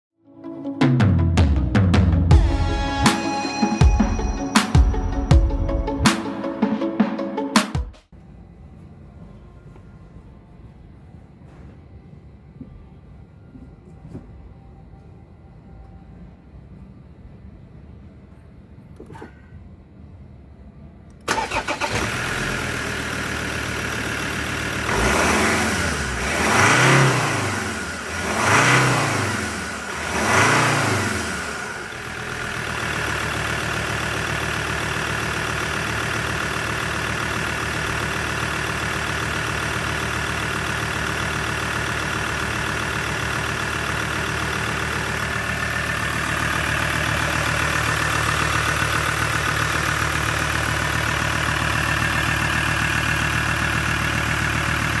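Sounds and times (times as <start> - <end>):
diesel engine starting: 21.1 - 55.0
diesel engine idling: 21.2 - 55.0
engine revving: 21.3 - 55.0.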